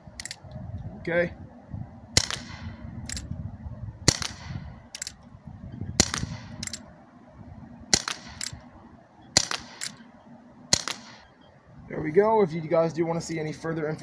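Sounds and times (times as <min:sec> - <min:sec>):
air pistol pops: 0:02.2 - 0:03.3, 0:04.1 - 0:05.2, 0:06.0 - 0:06.8, 0:07.9 - 0:08.6, 0:09.4 - 0:10.0, 0:10.7 - 0:11.3.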